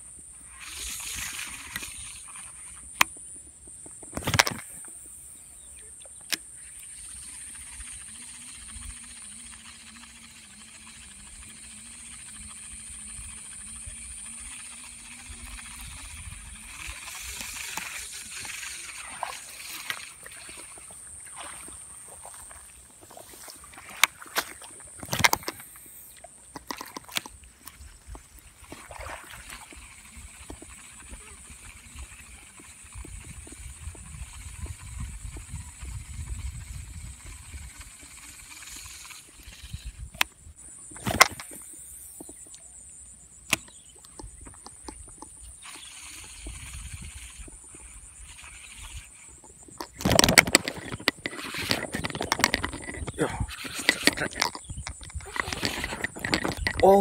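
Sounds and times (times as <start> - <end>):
steady high-pitched hiss: 0.0 - 57.0
fishing reel clicks and knocks: 0.6 - 3.2, 3.8 - 4.8, 6.1 - 20.8, 25.0 - 28.8, 43.5 - 57.0.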